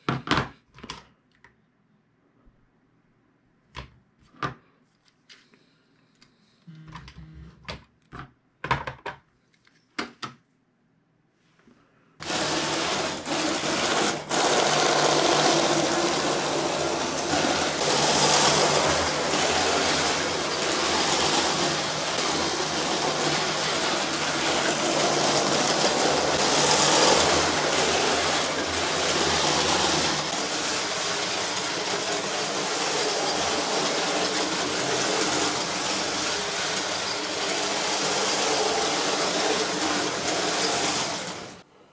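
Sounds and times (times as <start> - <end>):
toy train motor whirring: 12.2 - 41.6
wheel rattle: 12.2 - 41.6.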